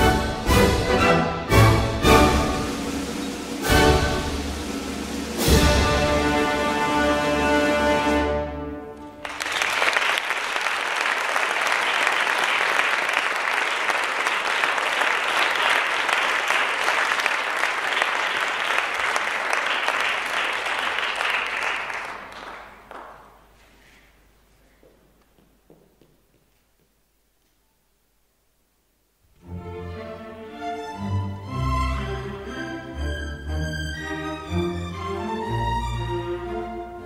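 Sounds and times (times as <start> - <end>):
orchestral music chord: 0.0 - 9.0
audience applauding: 9.1 - 24.0.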